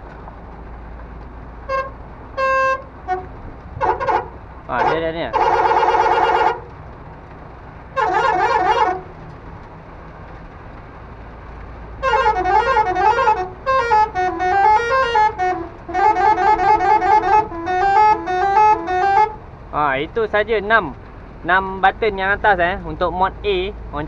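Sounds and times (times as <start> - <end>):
truck horn playing melodies: 1.6 - 6.7, 7.9 - 9.2, 12.0 - 19.5.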